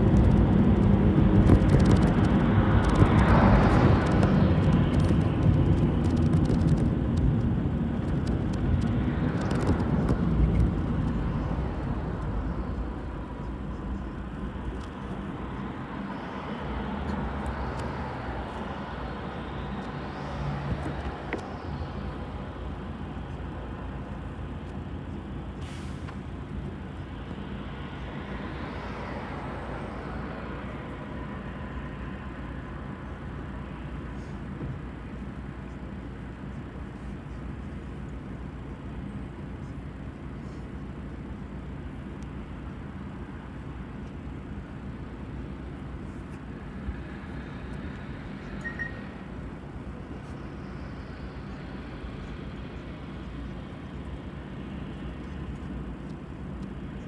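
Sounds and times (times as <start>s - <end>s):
bus engine drone: 0.0s - 57.0s
road noise: 0.0s - 57.0s
short high beep: 48.6s - 49.1s.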